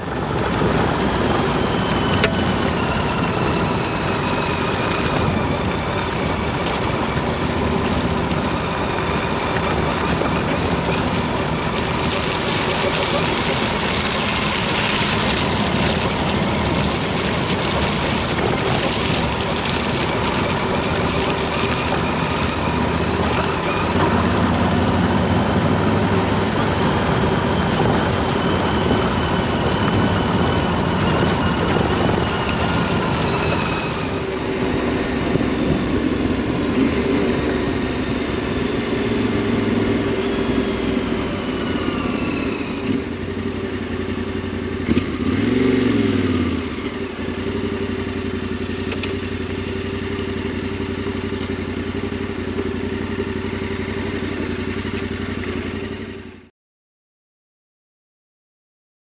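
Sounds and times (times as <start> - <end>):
wind noise: 0.0 - 43.1
tyres on gravel: 0.0 - 43.3
motorcycle engine running: 0.0 - 56.5.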